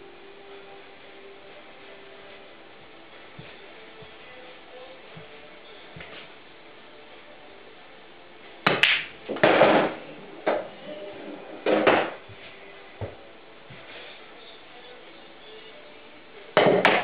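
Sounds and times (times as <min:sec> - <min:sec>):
billiard balls clacking: 0:08.6 - 0:12.3, 0:16.6 - 0:17.0
cue clicking ball: 0:08.7 - 0:10.7.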